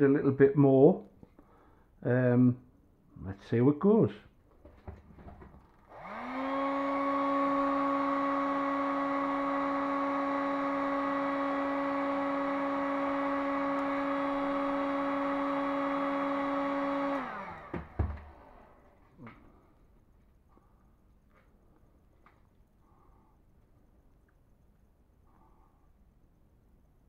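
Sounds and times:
heat gun fan whining: 5.2 - 19.6.

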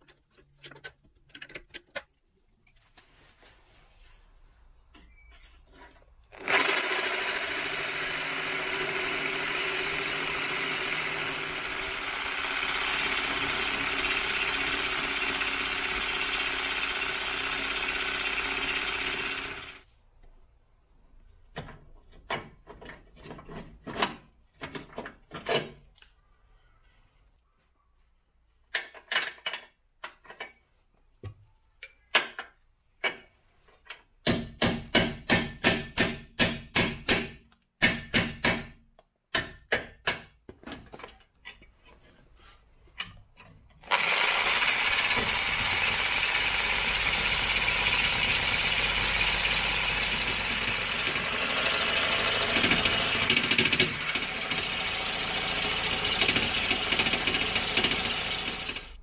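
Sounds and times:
impact wrench hammering: 34.2 - 40.4, 44.3 - 58.9.

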